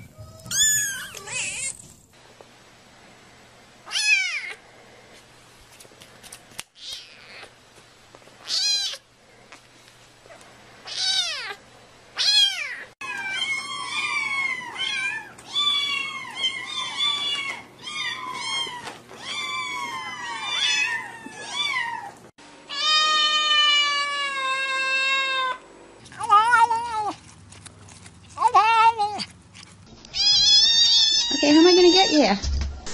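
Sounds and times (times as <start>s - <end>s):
kittens meowing: 0.0s - 1.8s, 10.8s - 11.6s, 12.2s - 25.6s, 30.1s - 32.3s.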